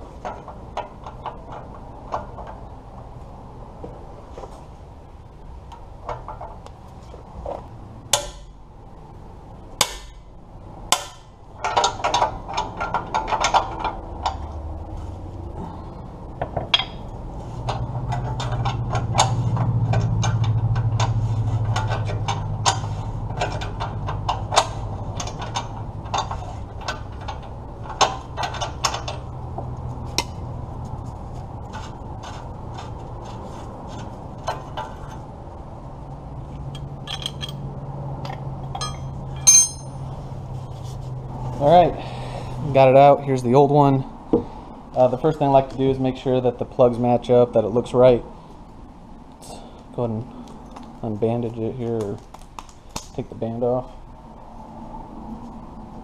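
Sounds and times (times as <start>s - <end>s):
metal wrench clicks and clanks: 36.7s - 37.6s, 38.2s - 40.0s.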